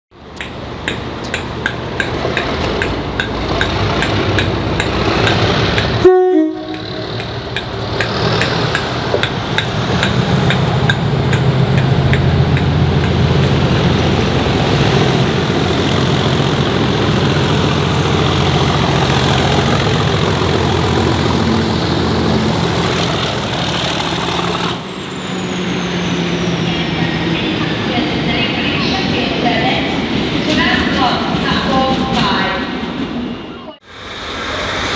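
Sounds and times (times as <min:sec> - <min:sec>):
train rumble and hiss: 0:00.2 - 0:34.9
train warning horn blast: 0:06.0 - 0:07.3.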